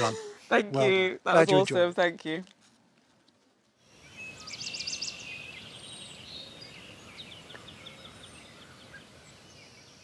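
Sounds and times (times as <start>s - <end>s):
background hiss: 0.0s - 10.0s
birds singing: 3.8s - 10.0s.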